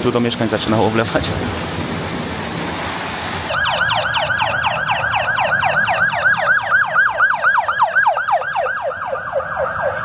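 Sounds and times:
ambulance siren yelping: 0:03.5 - 0:10.0.

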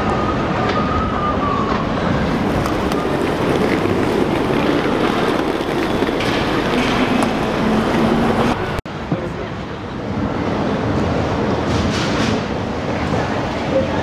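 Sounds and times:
loud vehicle noise: 0:01.8 - 0:13.8
low hum: 0:02.3 - 0:08.8.

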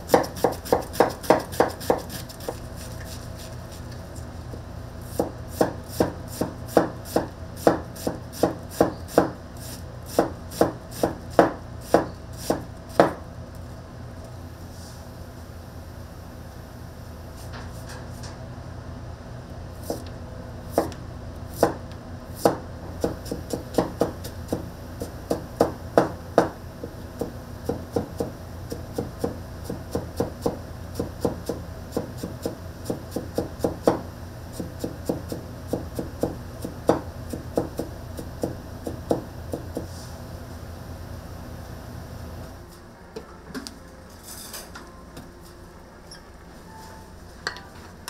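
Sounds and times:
steady low hum: 0:00.0 - 0:48.0
knife chopping on cutting board: 0:00.1 - 0:02.6, 0:05.1 - 0:09.4, 0:10.1 - 0:13.2, 0:20.7 - 0:21.0, 0:22.4 - 0:26.6.

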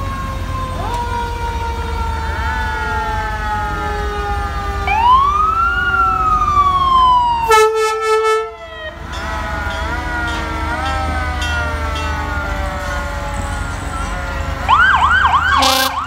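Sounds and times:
sirens wailing: 0:00.0 - 0:16.0
horn blast: 0:07.4 - 0:10.4, 0:13.3 - 0:16.0.

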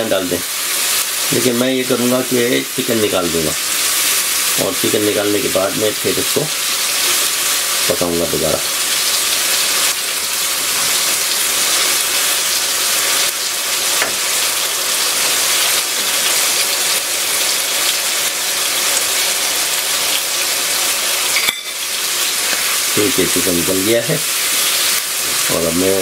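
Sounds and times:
chicken sizzling in a wok: 0:00.0 - 0:26.0.

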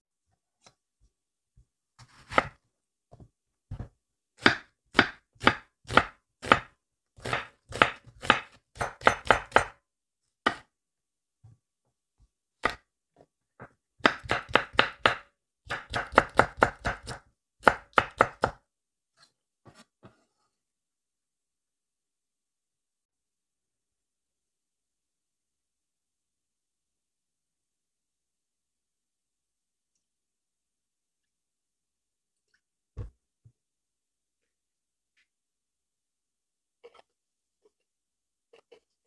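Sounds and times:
knife chopping on wooden board: 0:02.0 - 0:02.6, 0:03.7 - 0:09.8, 0:13.6 - 0:18.6.

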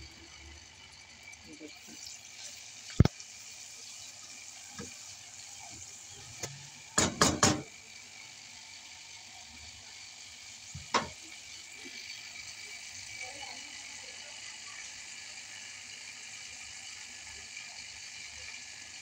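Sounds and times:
chicken sizzling in oil: 0:00.0 - 0:19.0
spatula knocking against pan: 0:07.0 - 0:07.7, 0:10.8 - 0:11.2.

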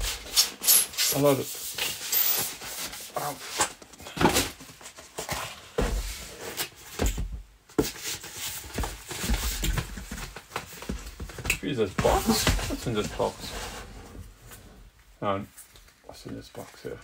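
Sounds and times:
cardboard boxes rustling: 0:01.1 - 0:14.6.

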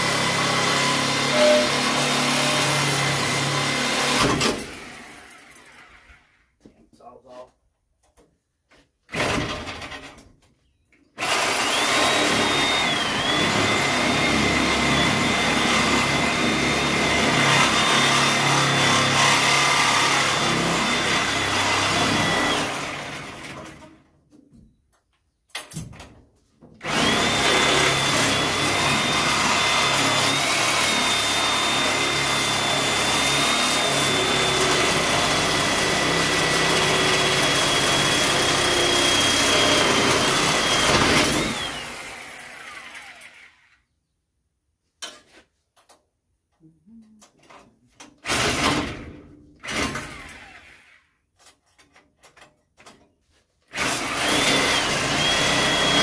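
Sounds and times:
power tool whining on steel: 0:00.0 - 0:06.1, 0:11.2 - 0:23.8, 0:26.8 - 0:43.8, 0:53.8 - 0:56.0.

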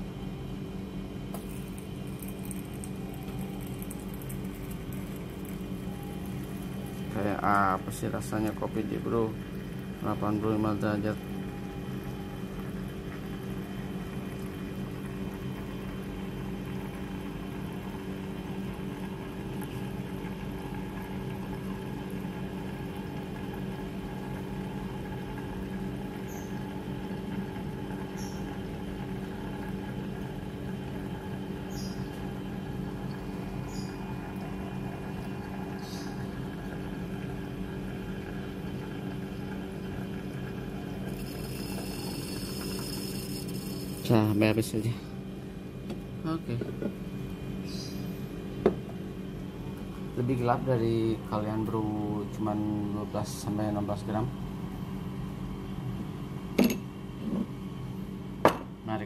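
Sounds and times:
low tonal hum: 0:23.4 - 0:58.9.

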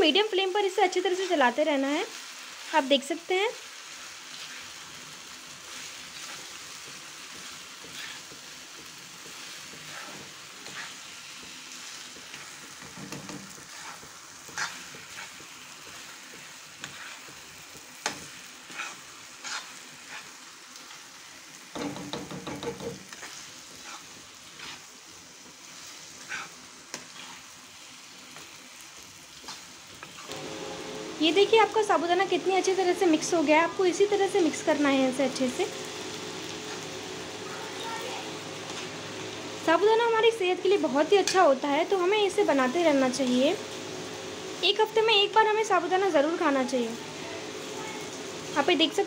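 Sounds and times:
food sizzling in a pan: 0:00.0 - 0:49.0
metal spoon scraping a pan: 0:05.7 - 0:17.4, 0:18.0 - 0:21.0, 0:21.7 - 0:25.0, 0:25.7 - 0:27.5, 0:38.6 - 0:39.0, 0:41.1 - 0:41.6.

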